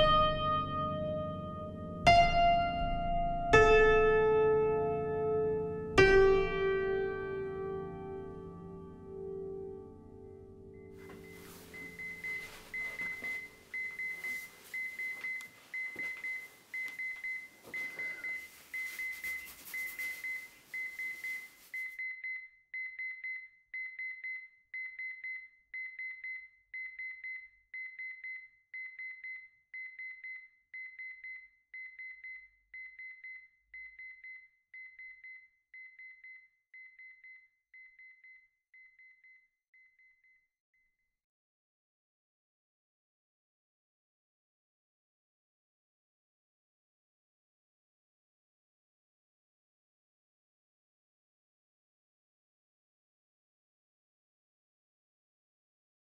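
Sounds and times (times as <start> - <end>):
alarm clock beeping: 0.0 - 8.5, 10.8 - 40.5.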